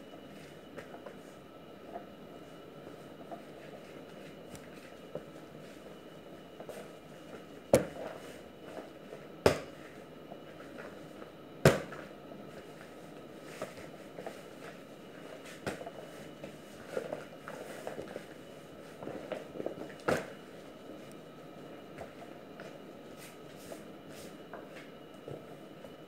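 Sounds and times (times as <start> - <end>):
dough slapped on counter: 9.4 - 9.7, 11.6 - 12.0.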